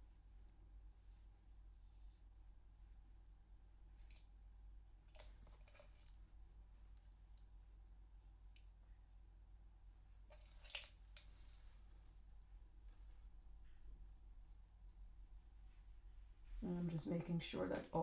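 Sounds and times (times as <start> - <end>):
low steady hum: 0.0 - 18.0
brush rustling on paper: 0.8 - 2.4, 11.3 - 12.1.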